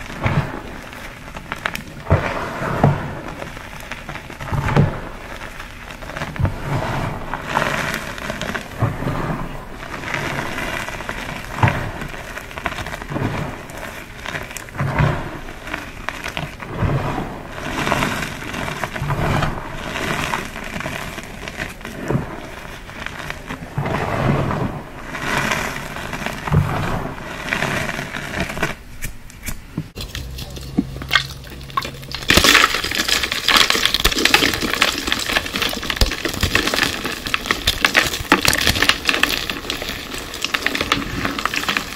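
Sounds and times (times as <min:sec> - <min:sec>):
chalk blocks crunching: 0:27.9 - 0:41.9.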